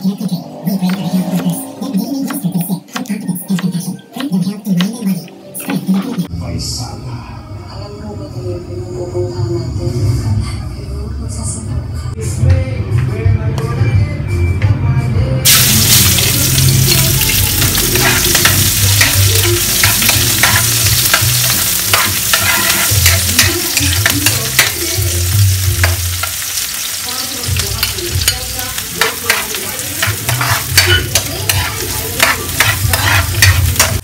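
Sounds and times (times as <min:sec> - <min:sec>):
onions sizzling in hot oil: 0:15.5 - 0:34.0
spatula scraping a pan: 0:17.3 - 0:25.0, 0:27.8 - 0:34.0.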